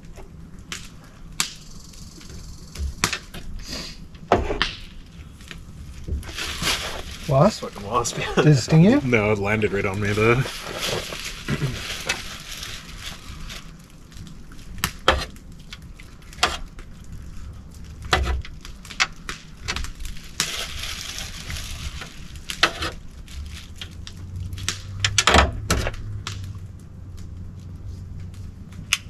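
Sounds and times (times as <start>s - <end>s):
skin and feathers tearing: 9.7s - 14.2s.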